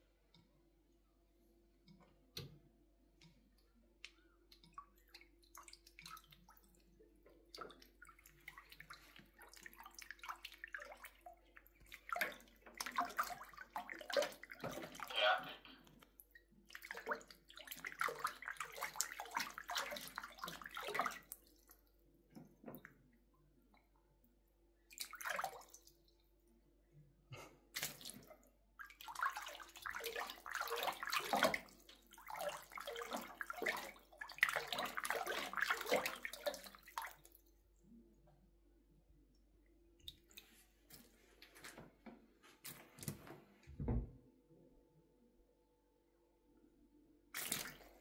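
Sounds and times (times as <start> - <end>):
water splashing in metal sink: 4.5 - 23.1, 24.9 - 26.1, 27.8 - 37.5, 47.4 - 48.0.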